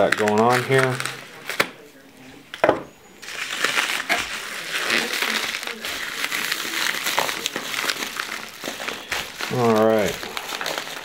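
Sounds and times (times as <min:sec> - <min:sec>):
mailer rustling and crinkling: 0:03.2 - 0:11.0.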